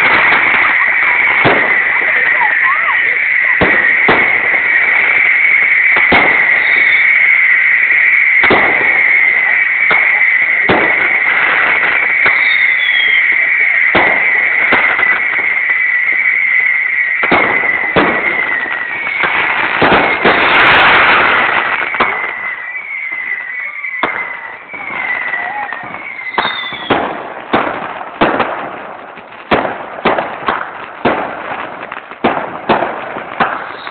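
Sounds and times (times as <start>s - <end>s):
fireworks crackling: 0.0s - 33.9s
fireworks shells exploding: 0.0s - 33.9s
steady high whistle: 5.1s - 10.5s, 12.0s - 19.3s, 21.8s - 26.9s
short falling whistles: 12.4s - 13.4s.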